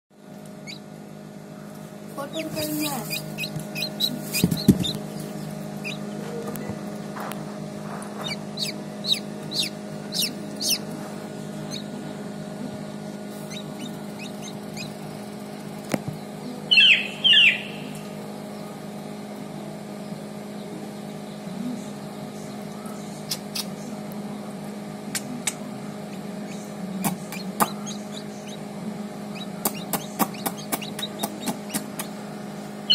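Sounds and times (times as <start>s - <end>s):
steady low hum: 0.1s - 32.9s
chick peeping: 0.6s - 0.9s, 1.6s - 12.2s, 13.1s - 18.8s, 26.1s - 32.9s.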